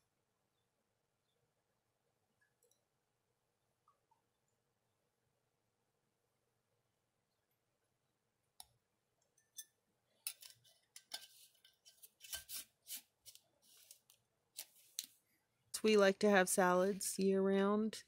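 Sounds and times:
metal lid scraping on glass jar: 10.3 - 13.0.

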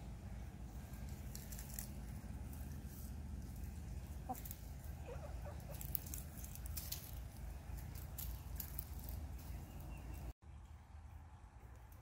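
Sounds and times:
hen clucking softly: 3.7 - 6.2.

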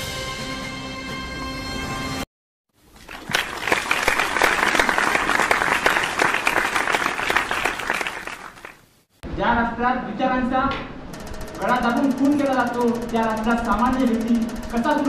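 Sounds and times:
audience clapping: 2.9 - 8.9.

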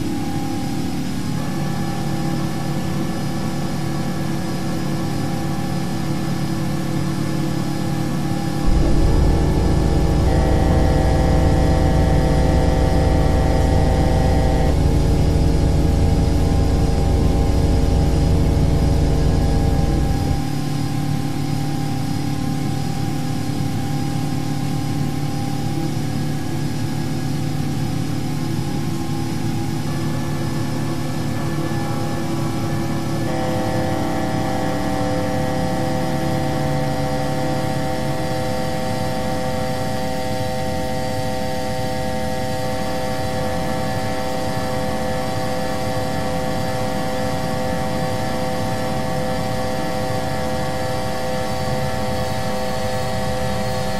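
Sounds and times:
altitude alert chord: 8.6 - 20.6
cockpit engine rumble: 8.6 - 20.6.

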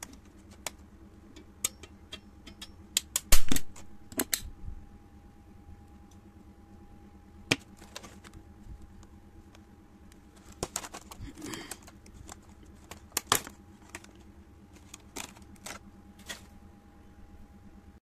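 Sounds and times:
plastic packaging clicks and snaps: 10.5 - 14.2.

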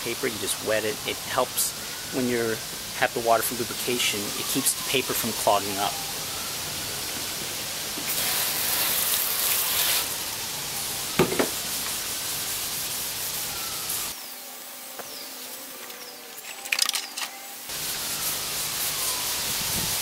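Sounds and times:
sandpaper rubbing hiss: 8.0 - 16.6, 17.4 - 20.0.

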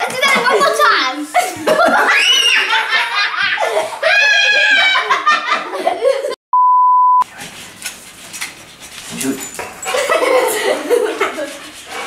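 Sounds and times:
people laughing: 1.3 - 6.4, 9.8 - 11.7
electronic bleep: 6.5 - 7.2.

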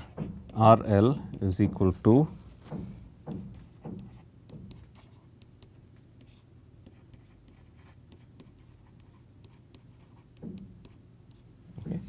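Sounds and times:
stylus scratching on pen tablet: 3.8 - 11.5.

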